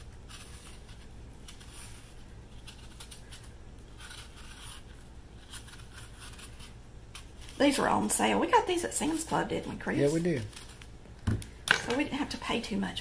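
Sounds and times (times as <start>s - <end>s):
knife peeling an apple: 0.0s - 8.1s, 9.2s - 11.0s
low steady hum: 0.0s - 13.0s.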